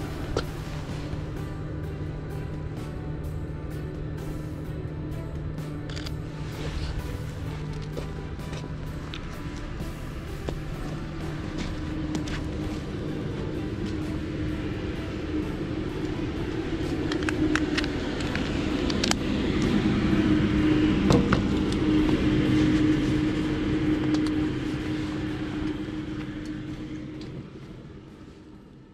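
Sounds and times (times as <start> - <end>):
mechanical hum with low tone: 0.0 - 28.9
footsteps on wet pavement: 6.5 - 14.1.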